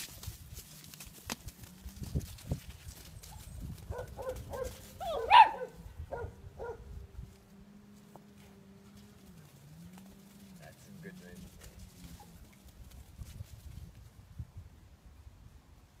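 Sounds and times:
puppies yapping: 3.2s - 6.8s.

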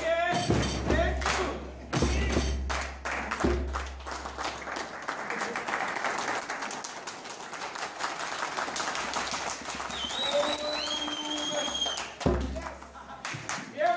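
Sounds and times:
audience applauding: 2.6s - 13.7s.

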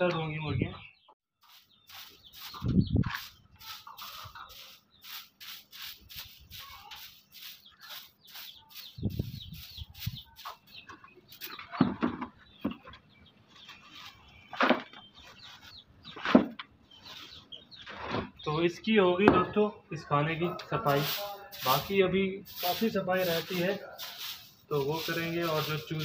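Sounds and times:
twig broom sweeping wooden floor: 1.4s - 11.6s, 13.6s - 14.3s, 20.7s - 26.0s.

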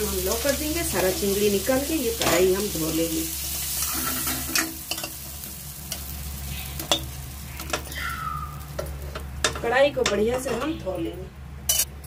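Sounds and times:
hot oil sizzling: 0.0s - 10.5s
metal spatula scraping pan: 3.7s - 5.2s.

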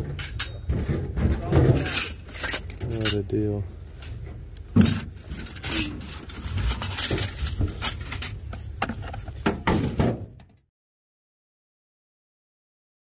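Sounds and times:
metal parts clinking in a tub: 0.0s - 3.4s, 4.7s - 8.4s.

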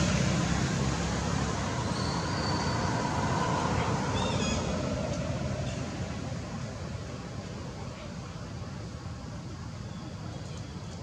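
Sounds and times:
vehicle passing: 0.0s - 7.5s.

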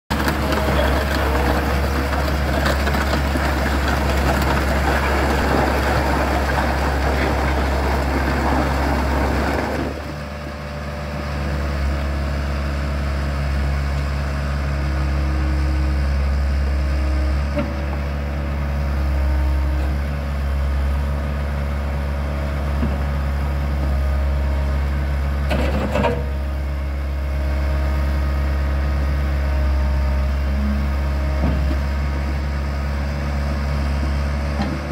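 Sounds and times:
hydraulics working: 0.1s - 10.8s
excavator diesel engine running: 0.1s - 34.9s.

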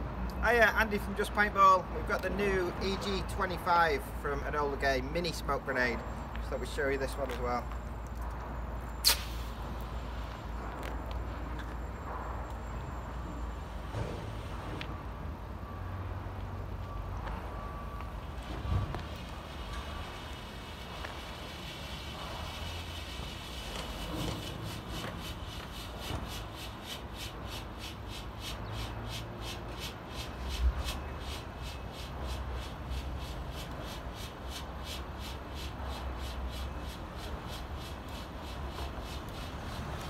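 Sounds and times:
smoke grenade hissing: 9.0s - 9.7s, 19.4s - 40.0s.

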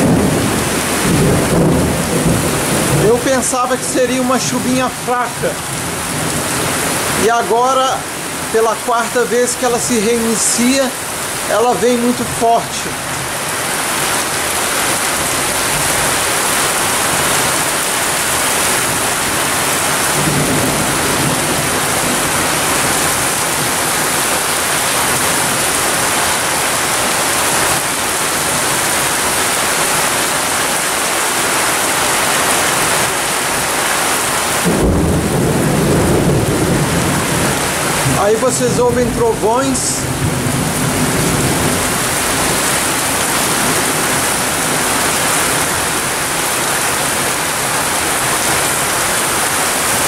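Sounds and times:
low rumble of thunder: 0.0s - 3.1s, 20.1s - 23.8s, 34.6s - 38.2s, 40.0s - 42.6s
heavy rain pouring: 0.0s - 50.0s.

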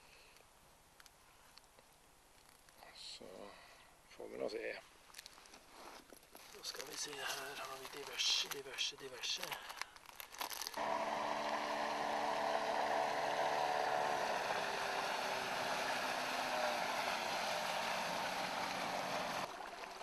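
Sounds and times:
outboard motor running: 10.7s - 20.0s
water rushing along hull: 10.8s - 20.0s.

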